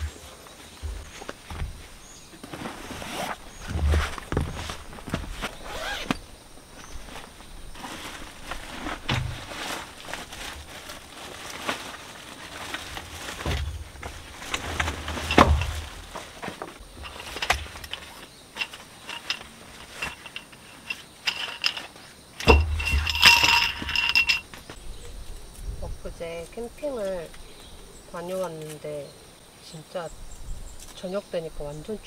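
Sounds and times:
plastic and fabric bag rustling: 6.8s - 24.4s
metal poles clicking and clinking: 14.5s - 24.6s.

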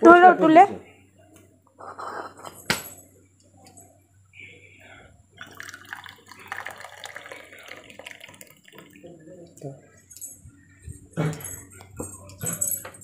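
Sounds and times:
tea pouring into steel tumbler: 5.4s - 9.2s
metal tumbler clinking on concrete: 11.3s - 13.0s.

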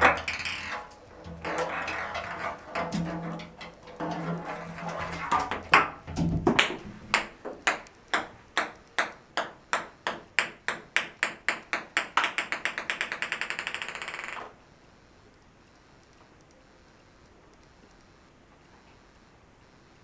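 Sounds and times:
ping pong ball bouncing: 0.0s - 14.5s.

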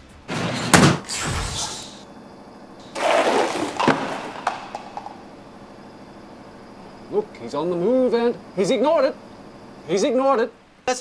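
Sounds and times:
noisy crashes with sharp knock: 0.7s - 2.0s.

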